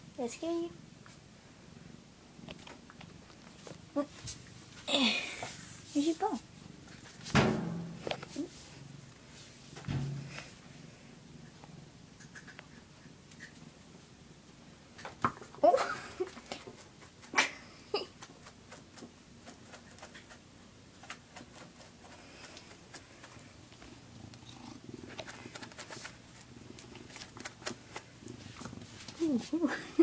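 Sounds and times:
cat purring: 10.2 - 14.1, 19.4 - 30.0.

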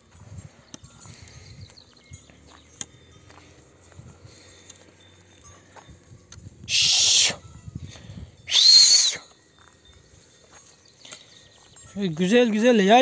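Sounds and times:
person whistling calls: 6.7 - 7.4, 8.5 - 9.4.

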